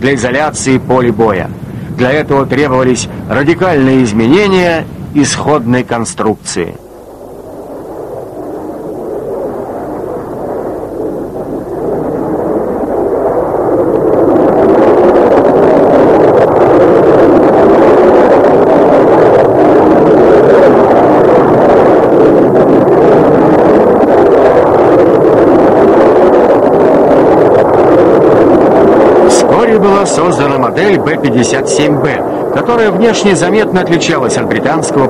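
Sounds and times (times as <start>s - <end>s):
jet engines roaring: 0.0s - 35.0s.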